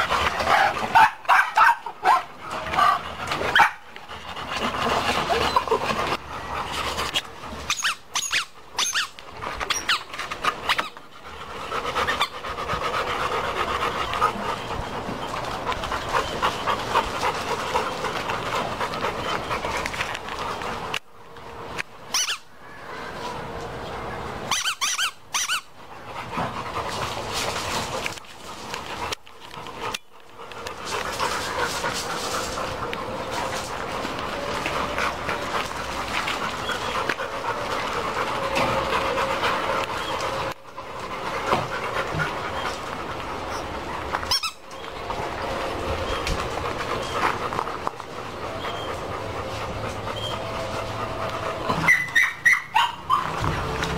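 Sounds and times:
dogs panting: 0.0s - 53.9s
steady background noise: 0.0s - 53.9s
dog whining yelps: 7.7s - 10.1s, 22.1s - 22.5s, 24.5s - 25.7s, 44.3s - 44.6s, 51.7s - 53.4s.

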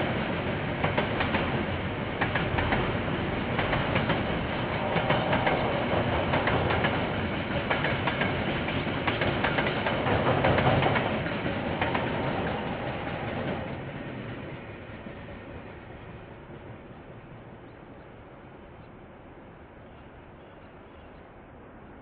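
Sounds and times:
train wheels clicking over rail joints: 0.2s - 15.2s.

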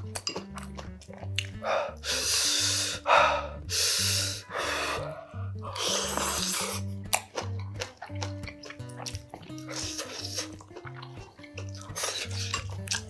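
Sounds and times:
background music with steady beat: 0.0s - 13.0s
person slurping noodles: 1.6s - 7.0s, 9.5s - 13.0s.

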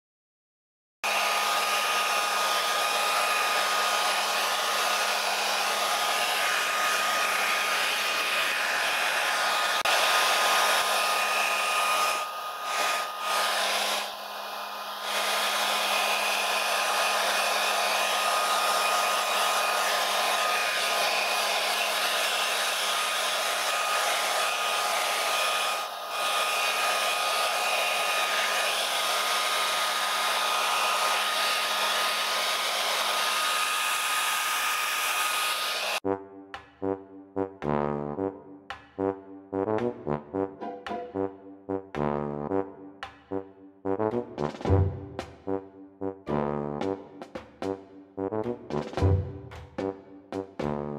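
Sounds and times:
hair dryer blowing: 1.0s - 36.0s.

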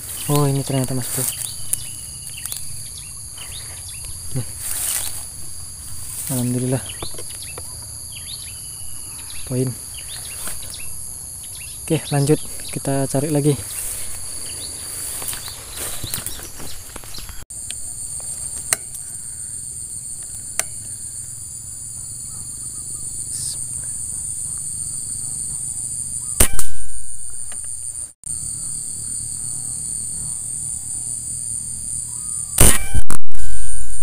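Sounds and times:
insects buzzing: 0.0s - 34.0s
sharp loud crack: 26.4s - 27.5s, 32.6s - 34.0s.

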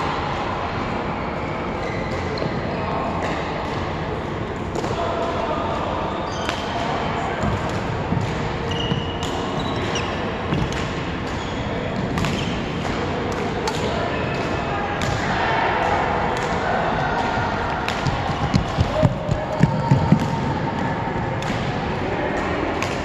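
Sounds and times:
shoes squeaking on court: 8.6s - 10.6s.

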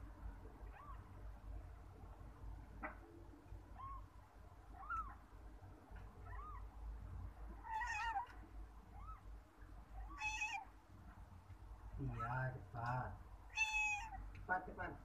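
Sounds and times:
kitten mewing: 7.5s - 9.2s, 10.0s - 10.7s, 13.5s - 14.3s.

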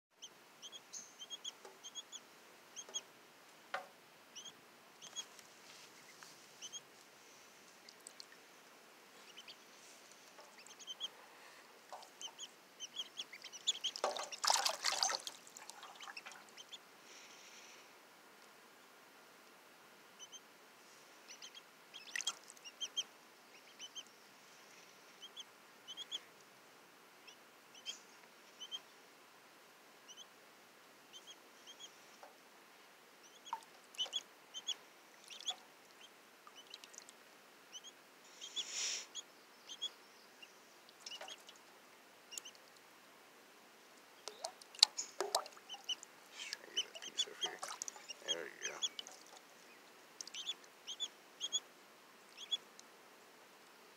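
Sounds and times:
ducklings peeping: 0.2s - 3.1s, 4.3s - 6.9s, 9.2s - 16.8s, 20.2s - 20.5s, 21.2s - 24.1s, 25.2s - 26.3s, 27.2s - 28.9s, 30.0s - 30.3s, 31.1s - 32.0s, 33.2s - 37.1s, 37.7s - 41.7s, 42.3s - 42.7s, 44.2s - 51.7s, 52.3s - 52.7s
water splashing: 11.8s - 16.7s, 22.0s - 22.6s, 44.2s - 50.5s.

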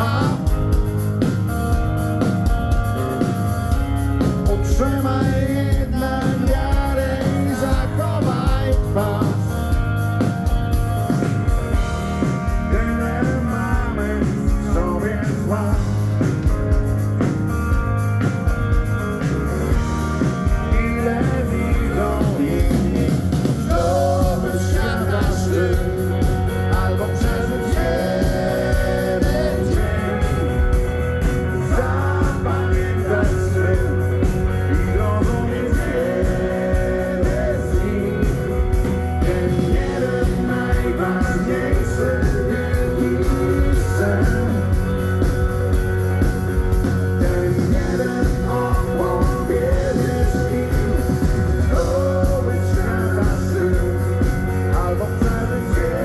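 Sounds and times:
man singing lead: 0.0s - 1.2s, 4.1s - 10.0s, 11.7s - 17.1s, 19.7s - 56.0s
rock band playing live: 0.0s - 56.0s.

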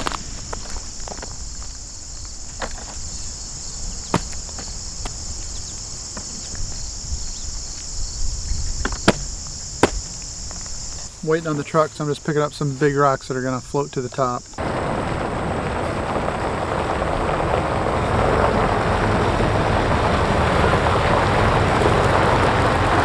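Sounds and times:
footsteps on gravel: 0.0s - 8.0s, 8.7s - 11.7s
insects chirring: 0.0s - 22.9s
stones clicking: 4.1s - 5.2s.

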